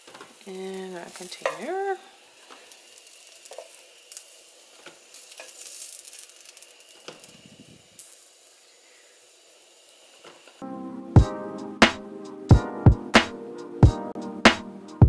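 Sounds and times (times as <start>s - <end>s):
sausage sizzling in a skillet: 0.0s - 10.6s.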